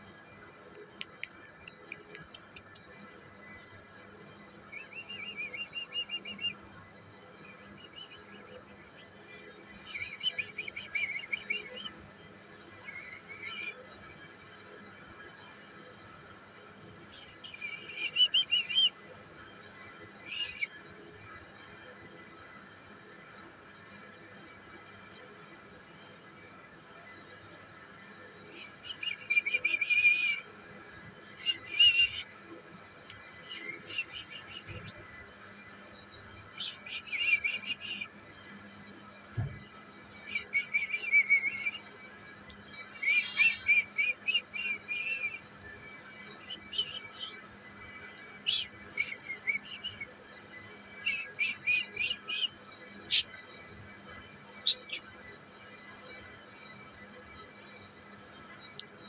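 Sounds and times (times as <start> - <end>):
bird chirping: 42.6 - 45.6, 53.1 - 53.3, 54.6 - 55.0.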